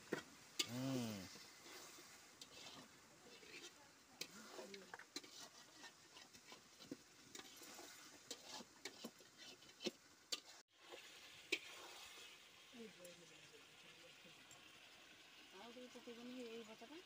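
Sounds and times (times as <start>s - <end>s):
faint sizzle: 0.0s - 17.0s
metal spatula scraping pan: 1.3s - 10.6s.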